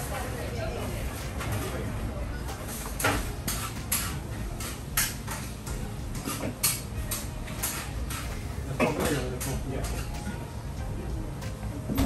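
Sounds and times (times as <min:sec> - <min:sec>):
utensils and containers clattering: 0:02.7 - 0:10.5.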